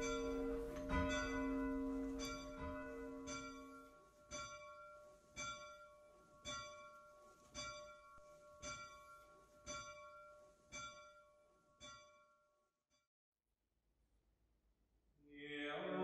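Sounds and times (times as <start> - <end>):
bell tolling: 0.0 - 4.8.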